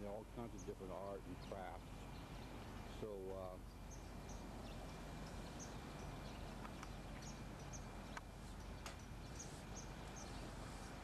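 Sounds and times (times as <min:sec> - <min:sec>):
low hum: 0:00.0 - 0:11.0
sharp clicks: 0:06.6 - 0:07.0.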